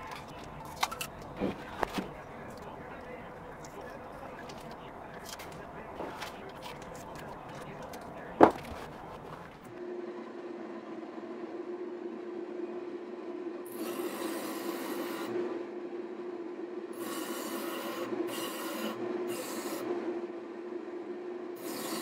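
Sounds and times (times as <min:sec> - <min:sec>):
sanding disc humming: 0:13.7 - 0:15.5, 0:17.0 - 0:20.2, 0:21.6 - 0:22.0.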